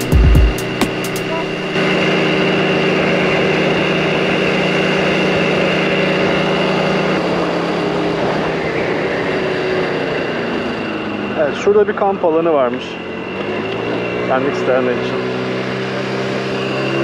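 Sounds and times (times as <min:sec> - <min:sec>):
riding noise rush: 0:00.0 - 0:13.7
scooter engine running: 0:00.0 - 0:17.0.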